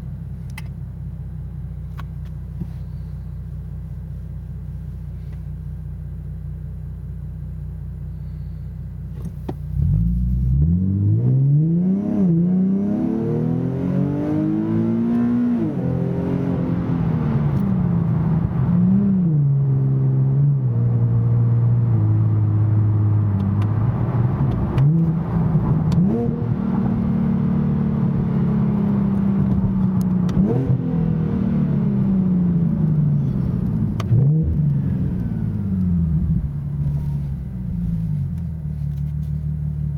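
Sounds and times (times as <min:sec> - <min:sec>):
car engine revving: 0:09.6 - 0:39.2.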